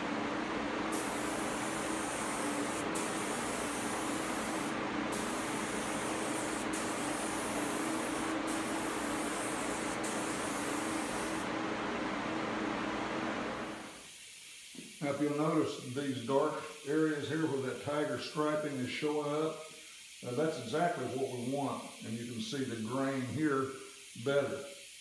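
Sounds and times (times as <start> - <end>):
steady background hum: 0.0 - 14.0
spray gun hissing: 0.9 - 11.5, 13.6 - 25.0.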